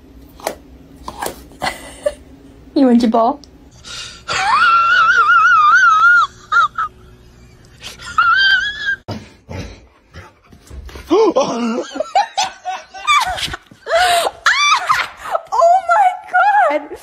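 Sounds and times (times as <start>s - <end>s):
people laughing: 4.3s - 9.0s, 11.1s - 15.4s.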